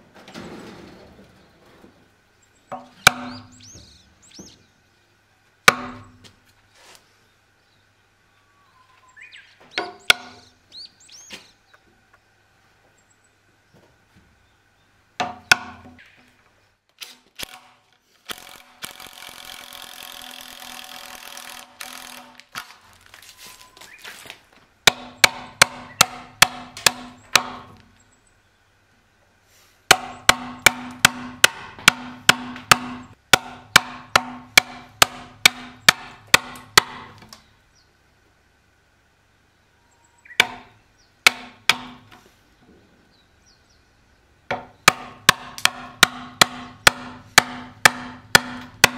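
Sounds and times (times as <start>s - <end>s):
hammer striking chisel into wood: 2.7s - 3.5s, 5.7s - 6.2s, 9.8s - 10.4s, 15.2s - 16.0s, 24.8s - 27.8s, 29.9s - 37.1s, 40.4s - 40.7s, 41.3s - 42.0s, 44.5s - 48.9s.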